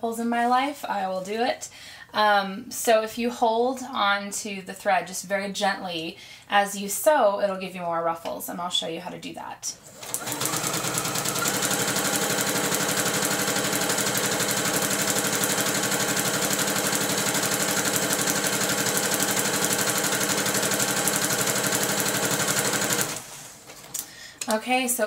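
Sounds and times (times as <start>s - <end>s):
sewing machine stitching: 9.9s - 23.3s.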